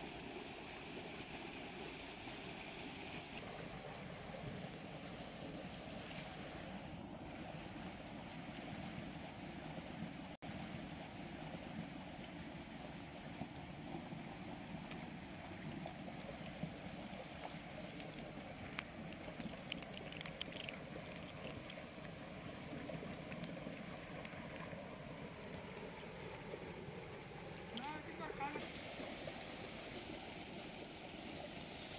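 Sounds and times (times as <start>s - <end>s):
sharp clicks and ticks: 17.9s - 22.1s.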